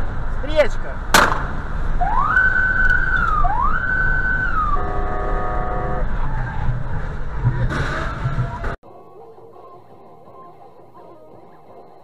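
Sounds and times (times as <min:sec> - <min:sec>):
road noise rumble: 0:00.0 - 0:12.0
electronic siren wail: 0:02.0 - 0:06.8
horn-like chord: 0:04.8 - 0:06.0.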